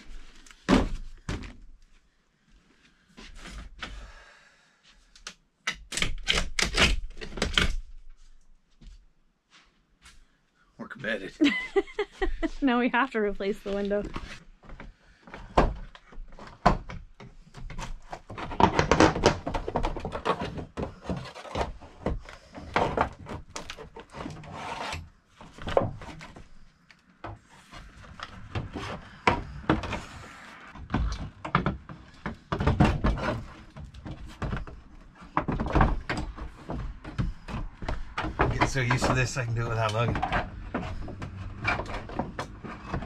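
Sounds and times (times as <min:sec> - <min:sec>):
wooden knocks and thunks: 0:00.6 - 0:01.7, 0:14.0 - 0:24.4, 0:25.4 - 0:26.6, 0:27.2 - 0:43.0
wood scraping: 0:13.6 - 0:43.0.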